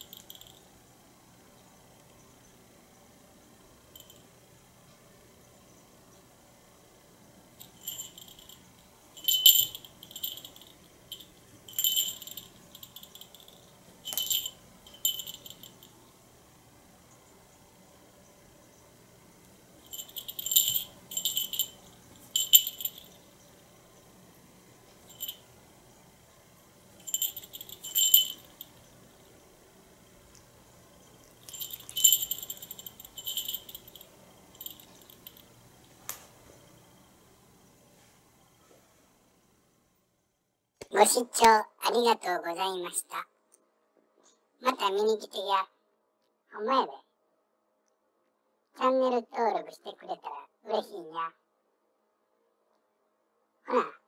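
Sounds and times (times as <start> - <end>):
cat collar bell jingling: 0.0 - 0.6, 3.9 - 4.2, 7.6 - 15.9, 19.8 - 23.2, 25.1 - 25.4, 27.0 - 28.9, 31.2 - 35.5.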